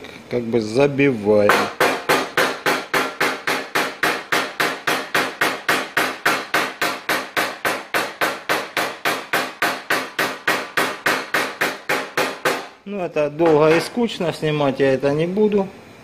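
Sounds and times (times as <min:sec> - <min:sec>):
hammer knocking on steel: 0:01.5 - 0:12.7, 0:13.4 - 0:14.0.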